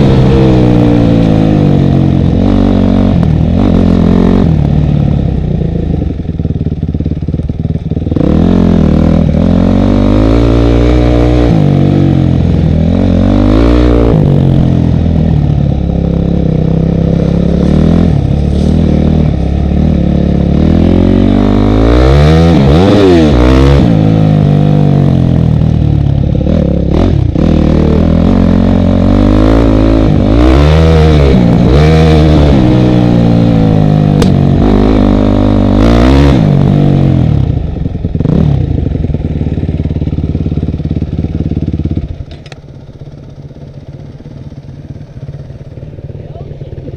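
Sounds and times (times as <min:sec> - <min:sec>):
dirt bike engine revving: 0:00.0 - 0:04.8, 0:08.0 - 0:42.1.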